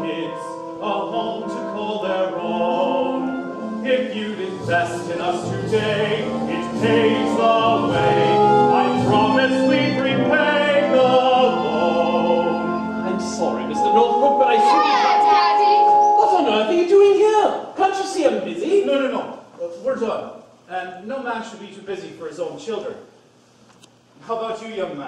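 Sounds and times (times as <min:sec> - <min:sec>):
voices singing with accompaniment: 0:00.0 - 0:16.3.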